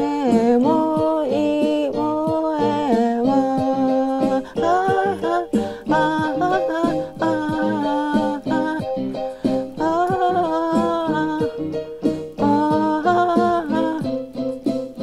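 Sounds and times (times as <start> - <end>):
woman humming a melody: 0.0 - 8.9, 12.4 - 14.2
keyboard accompaniment: 0.0 - 15.0.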